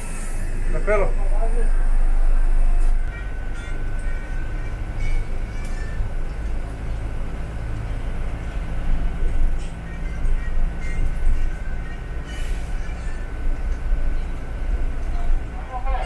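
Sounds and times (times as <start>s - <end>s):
bus engine rumble: 0.0s - 16.0s.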